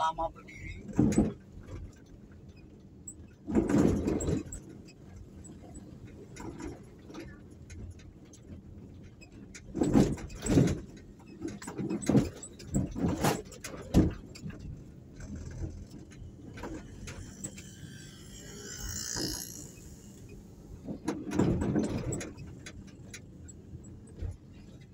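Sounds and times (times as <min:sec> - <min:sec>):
vehicle engine and road noise: 0:00.0 - 0:24.9.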